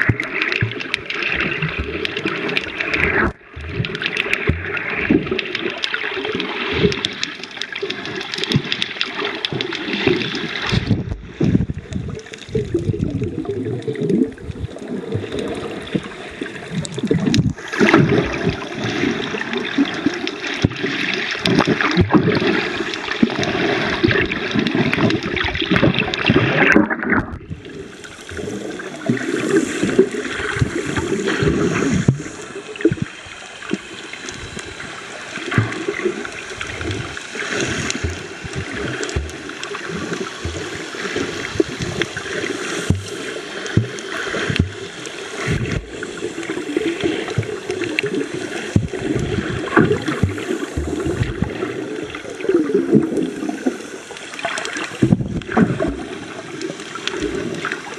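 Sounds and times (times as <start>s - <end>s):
muffled underwater sloshing: 0.0s - 57.9s
splashing and bubbling water: 0.0s - 57.9s
low underwater thumps: 43.7s - 44.8s.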